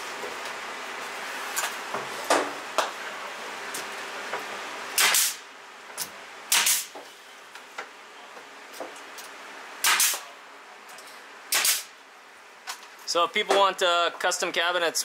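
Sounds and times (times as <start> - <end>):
nail gun firing: 5.0 - 5.4, 6.5 - 6.9, 9.8 - 10.2, 11.5 - 11.9.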